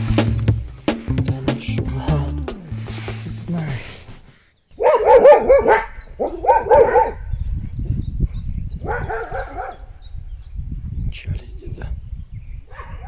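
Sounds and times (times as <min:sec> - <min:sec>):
dog yelping barks: 0:04.8 - 0:07.3, 0:08.8 - 0:09.9, 0:12.7 - 0:13.0.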